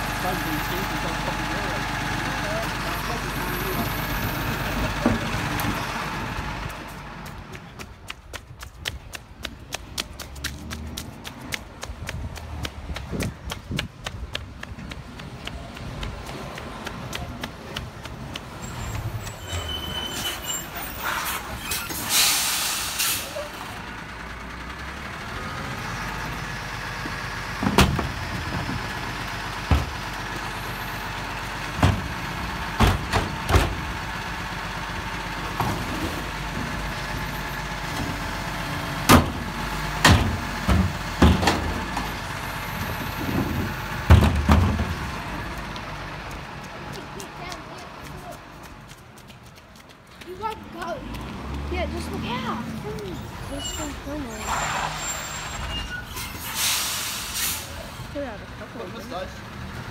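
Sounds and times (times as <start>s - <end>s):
diesel engine running: 0.0s - 8.1s, 20.5s - 59.9s
air hiss: 21.9s - 23.4s, 56.3s - 57.8s
bins clanking and banging: 35.5s - 36.8s, 39.1s - 42.2s, 42.9s - 45.1s.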